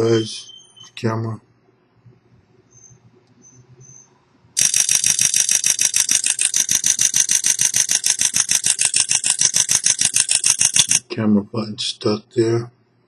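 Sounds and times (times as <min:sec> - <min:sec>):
rapid camera shutter clicks: 0:04.6 - 0:11.0.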